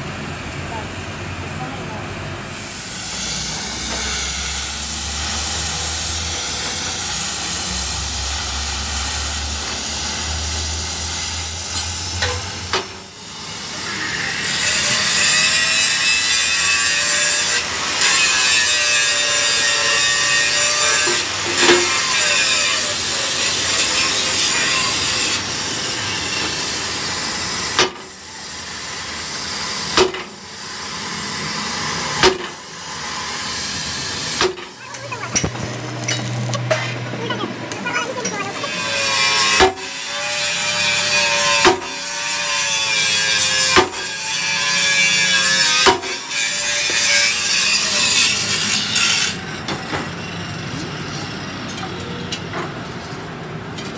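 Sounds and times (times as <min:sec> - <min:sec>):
cutting torch flame hissing: 0:00.1 - 0:16.6, 0:20.2 - 0:42.3.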